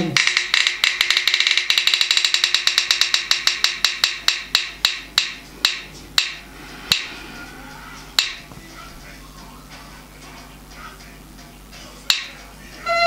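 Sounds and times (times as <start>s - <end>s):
spinning wheel ticking: 0.0s - 7.1s.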